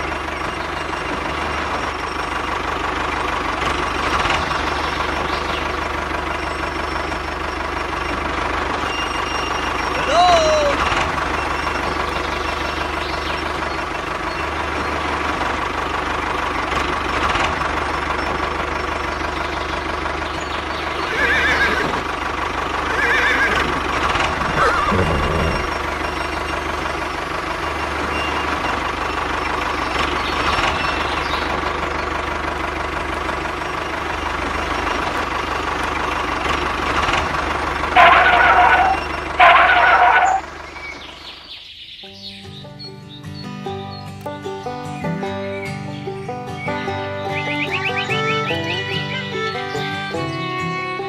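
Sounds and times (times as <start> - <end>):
toy tractor engine drone: 0.0 - 41.4
horse whinnying: 21.1 - 22.0, 22.9 - 25.8.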